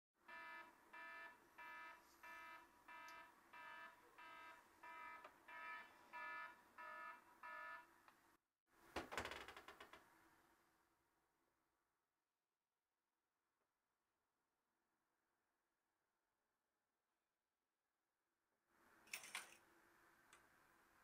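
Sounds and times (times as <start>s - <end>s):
alarm clock beeping: 0.3s - 7.9s.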